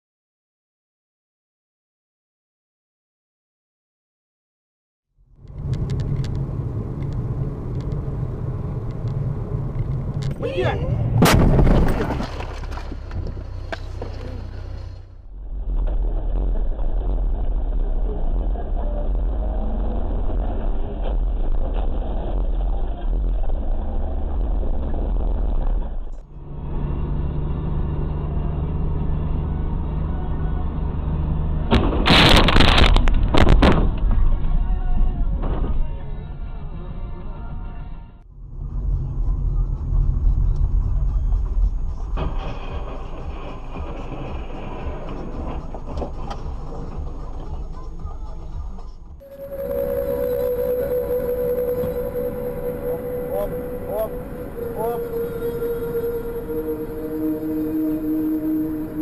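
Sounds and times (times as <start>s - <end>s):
car engine and road rumble: 5.2s - 59.0s
loud car crash: 11.0s - 14.0s, 31.7s - 36.1s, 42.1s - 47.0s
loud impact and clattering: 11.2s - 14.0s, 31.7s - 34.4s
brief wavering cry: 49.2s - 59.0s.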